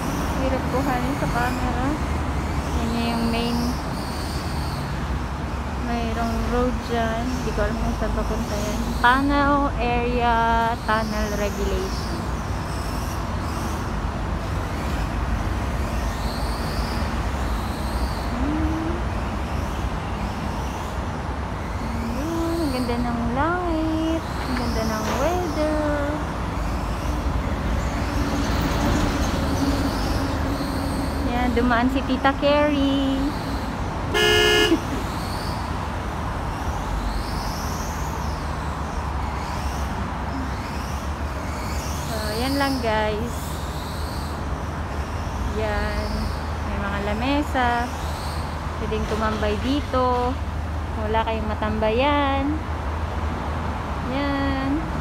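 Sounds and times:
road traffic rumble: 0:00.0 - 0:55.0
vehicle horn honking: 0:34.1 - 0:34.9.

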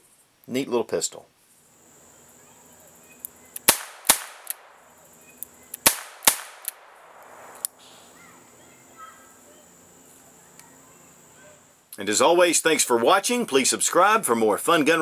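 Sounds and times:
faint cracks: 0:03.2 - 0:04.8, 0:05.4 - 0:07.9.

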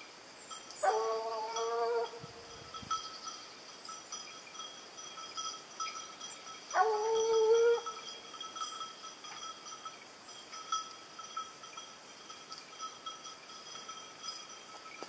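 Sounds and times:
hound baying: 0:00.8 - 0:02.2, 0:06.7 - 0:08.0.

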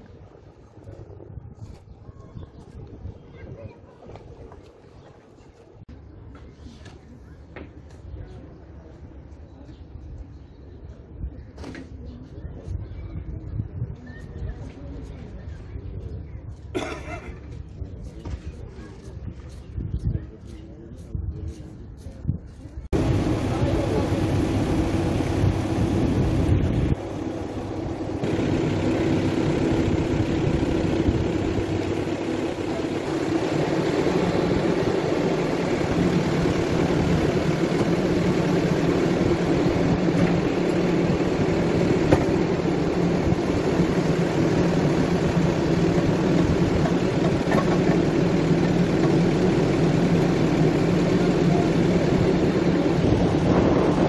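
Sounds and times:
diesel engine running: 0:22.9 - 0:54.0.

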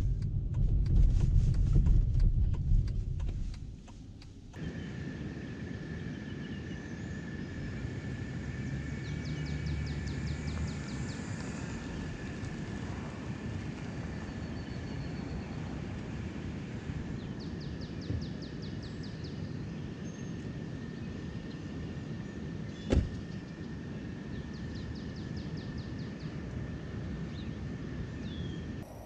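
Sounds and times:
low background rumble: 0:00.0 - 0:29.0
car door slamming: 0:22.9 - 0:23.2.

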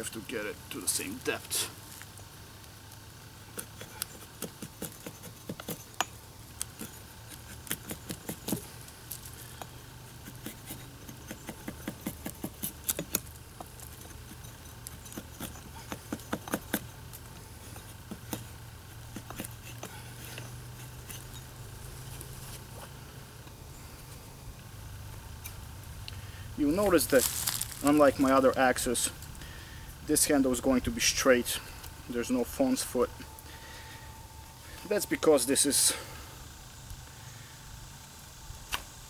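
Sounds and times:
blade scraping wood: 0:03.5 - 0:23.0.

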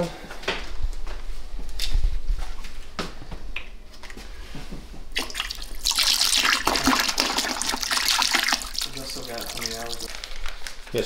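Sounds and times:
water pouring into bucket: 0:05.2 - 0:10.2.

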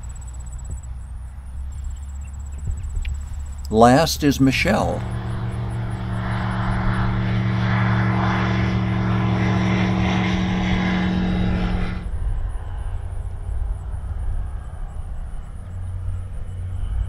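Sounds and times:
propeller plane flying low: 0:00.0 - 0:17.0.

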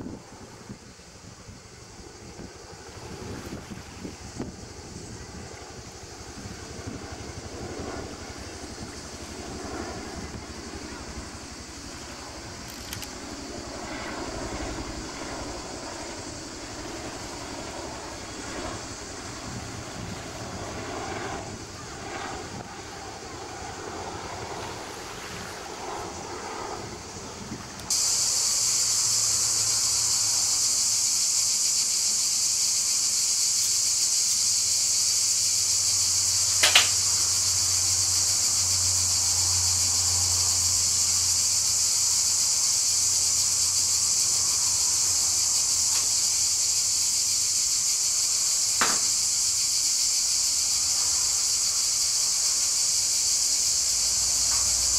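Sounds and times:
cicadas chorus: 0:00.0 - 0:54.9
distant aircraft engine drone: 0:00.0 - 0:54.9
sharp clicks: 0:12.6 - 0:13.2.

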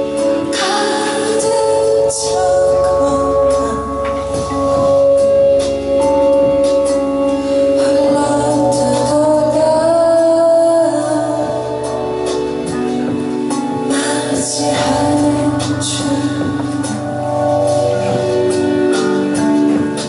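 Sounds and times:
woman singing: 0:00.0 - 0:05.0, 0:07.4 - 0:12.3, 0:13.8 - 0:17.5
electric keyboard chords: 0:00.0 - 0:20.0.

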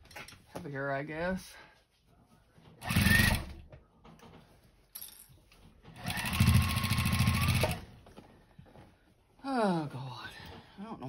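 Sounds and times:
sewing machine stitching: 0:02.8 - 0:03.6, 0:05.9 - 0:07.9.

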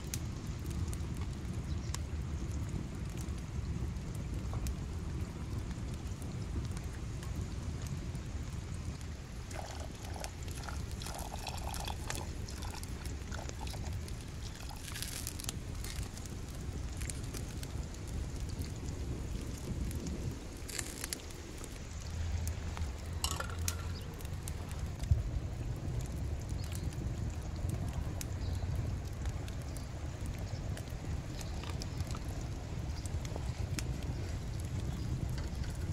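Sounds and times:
small fire crackles: 0:00.0 - 0:35.9
wood fire rumbling: 0:00.0 - 0:35.9
liquid pouring and bubbling: 0:08.8 - 0:35.9.

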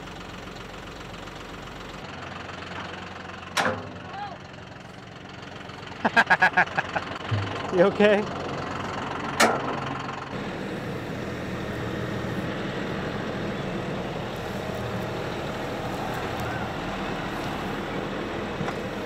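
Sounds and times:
front loader pushing brush and dirt: 0:00.0 - 0:19.0
tractor diesel engine running: 0:00.0 - 0:19.0.

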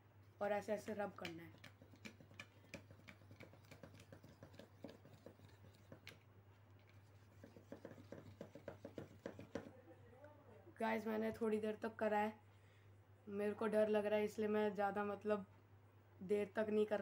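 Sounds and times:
pencil scratching on a can: 0:00.8 - 0:06.2, 0:06.8 - 0:09.8.

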